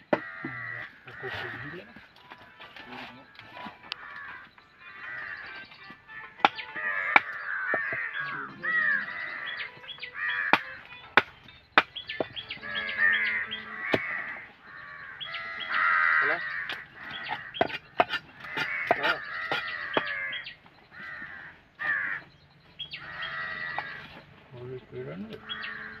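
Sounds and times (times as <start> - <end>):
harsh animal calls: 0.0 - 10.8, 11.9 - 26.0
knife chopping on wooden block: 17.6 - 20.1.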